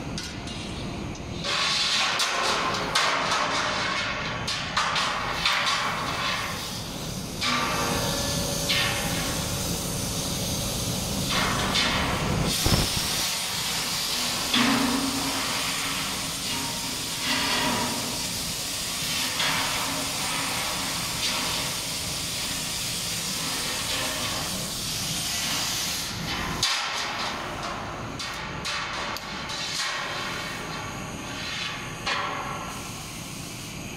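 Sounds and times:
compressed air blasts: 5.3s - 16.5s, 19.9s - 26.7s
compressed air hissing: 6.4s - 14.6s, 15.2s - 26.3s, 32.6s - 33.9s.

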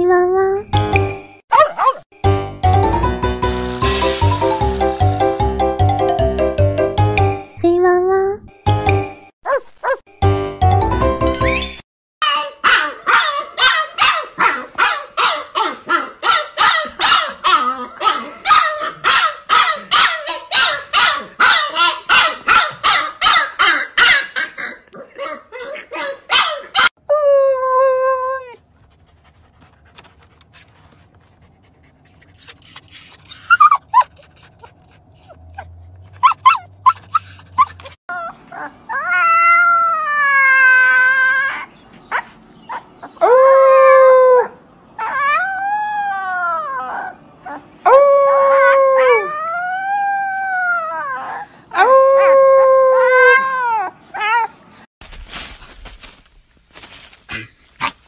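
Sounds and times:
puppy barking rapidly: 12.4s - 26.9s
puppy howling: 35.2s - 41.7s, 43.2s - 54.5s
dog howling: 43.2s - 54.4s.

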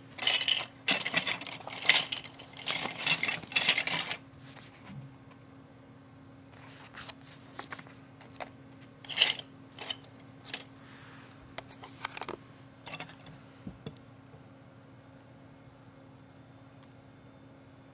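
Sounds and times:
paper and plastic rustling: 0.1s - 5.0s, 6.6s - 10.6s.

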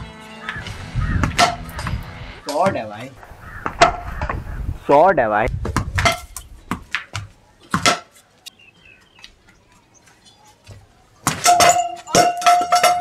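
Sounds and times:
frying pan hitting ball: 1.2s - 1.9s.

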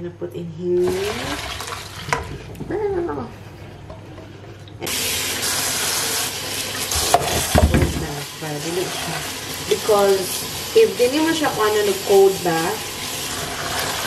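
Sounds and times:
water rushing into sink: 0.8s - 2.6s, 4.8s - 14.0s
pan knocking: 7.0s - 8.2s.

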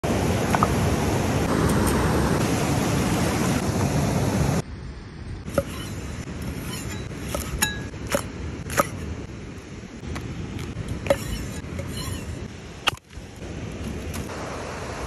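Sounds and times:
fast mountain stream rushing: 0.0s - 4.6s, 12.4s - 15.0s.

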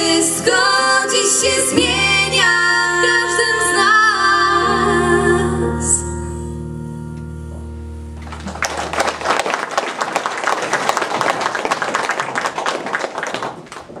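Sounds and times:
held music chord: 0.2s - 8.7s
audience applauding: 8.2s - 14.0s.

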